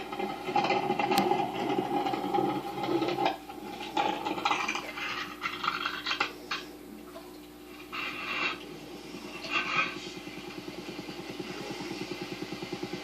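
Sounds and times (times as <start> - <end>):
muffled rubbing and scraping: 0.0 - 6.5, 7.6 - 13.0
steady hum: 0.0 - 13.0.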